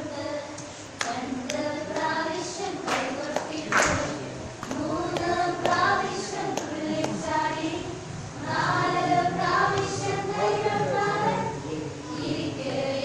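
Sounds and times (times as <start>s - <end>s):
boys singing in chorus: 0.0s - 13.0s
sharp claps or taps: 2.9s - 5.9s, 6.6s - 7.2s.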